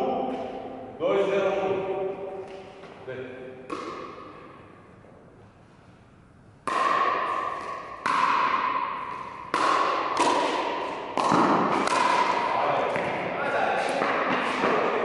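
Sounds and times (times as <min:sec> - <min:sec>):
paddles striking ball: 0:03.6 - 0:04.6, 0:06.6 - 0:15.0
ball bouncing on court: 0:03.7 - 0:04.5, 0:06.6 - 0:15.0.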